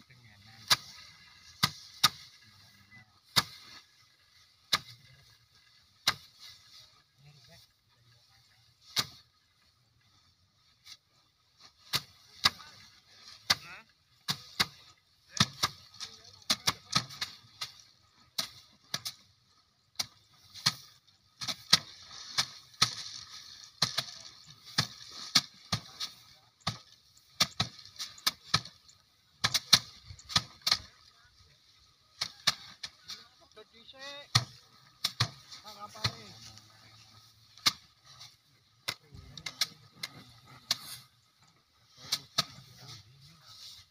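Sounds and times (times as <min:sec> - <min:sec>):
rustling straw and grain: 0:00.0 - 0:43.9
rice stalks whacked on wood: 0:00.6 - 0:02.5, 0:03.2 - 0:06.8, 0:08.8 - 0:09.3, 0:11.6 - 0:19.3, 0:19.9 - 0:31.1, 0:32.0 - 0:33.3, 0:34.2 - 0:41.0.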